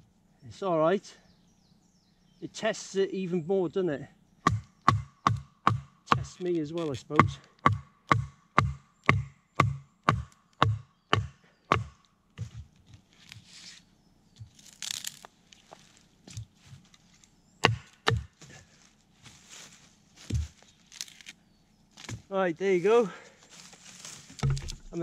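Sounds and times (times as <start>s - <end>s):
machete splitting wood: 4.5s - 12.0s, 17.6s - 18.5s, 24.4s - 25.0s
rustling: 12.4s - 17.4s, 18.4s - 22.3s, 23.4s - 25.0s.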